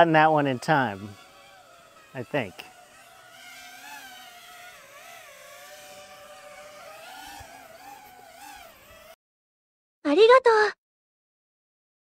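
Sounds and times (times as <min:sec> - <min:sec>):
drone propellers whining: 0:00.0 - 0:09.2.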